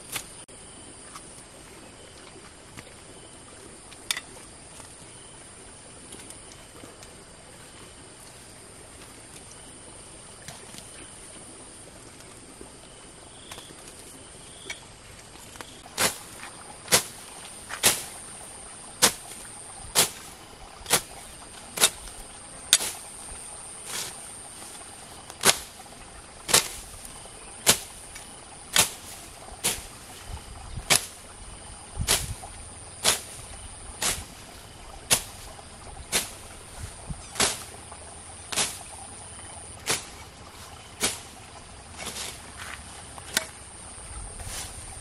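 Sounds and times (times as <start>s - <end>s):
blade swishing through grass: 15.6s - 31.3s, 32.0s - 39.2s, 39.8s - 43.5s, 44.3s - 45.0s.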